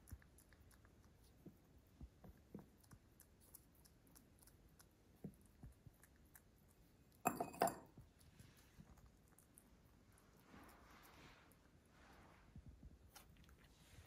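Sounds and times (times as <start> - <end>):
rabbit grooming ticks: 0.0 - 7.2
ceramic bowl clinks: 7.2 - 8.0.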